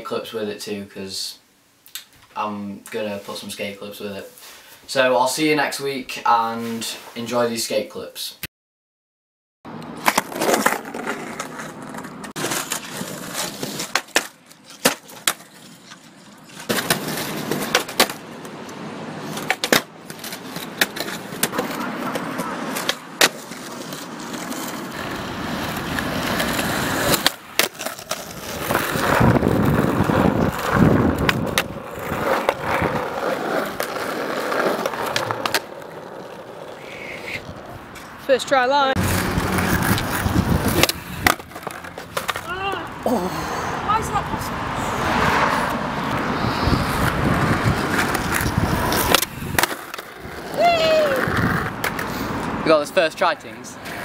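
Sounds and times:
skateboard wheels rolling: 9.7 - 43.1, 43.7 - 54.0
skateboard clacking on ground: 9.8 - 38.1, 39.0 - 43.0, 47.0 - 52.6.

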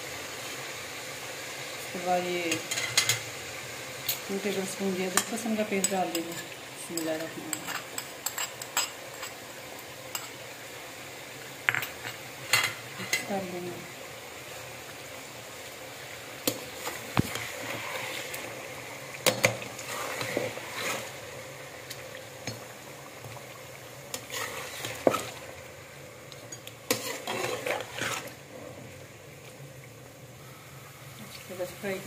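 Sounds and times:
chicken sizzling in oil: 0.0 - 32.0
metal spatula scraping pot: 19.2 - 21.2, 24.1 - 25.4, 26.5 - 28.4.

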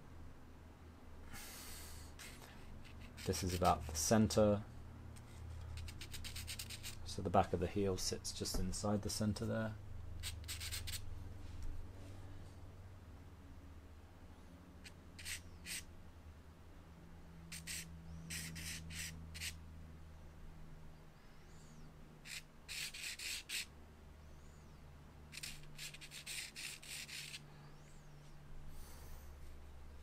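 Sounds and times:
steady low hum: 0.0 - 30.0
charcoal scratching on paper: 2.2 - 4.0, 5.6 - 7.0, 10.2 - 11.0, 15.2 - 15.8, 17.5 - 19.6, 22.3 - 23.7, 25.3 - 27.4.

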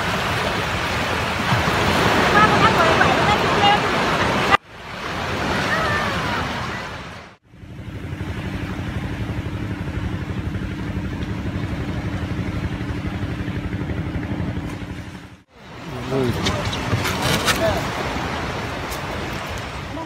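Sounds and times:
surf washing on beach: 0.0 - 7.4, 8.2 - 20.0
small engine idling: 7.5 - 15.4.

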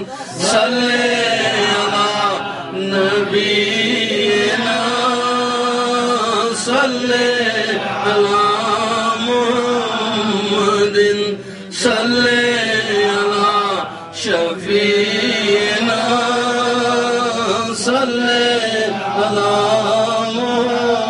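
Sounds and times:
man breathing: 0.0 - 0.4, 11.4 - 11.8
man chanting: 0.0 - 21.0.

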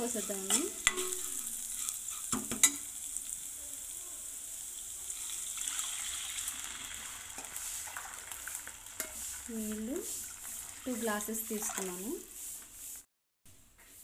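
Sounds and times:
steel spoon stirring: 0.0 - 3.0, 6.9 - 13.0
vegetables sizzling in hot oil: 0.0 - 13.1.

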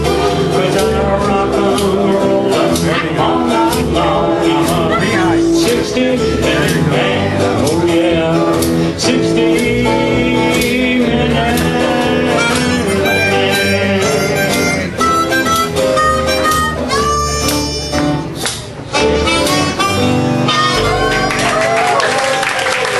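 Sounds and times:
upright bass: 0.0 - 22.2
acoustic guitar: 0.0 - 22.9
harmonica playing: 12.0 - 18.4, 19.0 - 21.4.

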